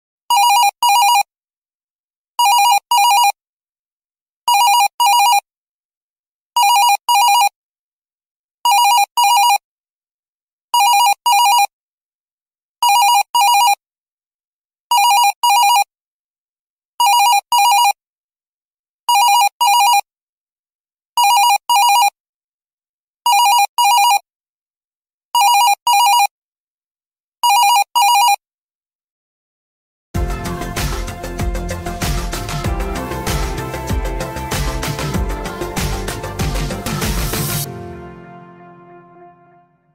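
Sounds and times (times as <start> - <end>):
office phone ringing: 0.3 - 1.3, 2.4 - 3.4, 4.5 - 5.4, 6.6 - 7.5, 8.7 - 9.6, 10.8 - 11.7, 12.8 - 13.8, 14.9 - 15.9, 19.1 - 20.1, 21.2 - 22.2, 23.3 - 24.2, 25.4 - 26.3, 27.4 - 28.4.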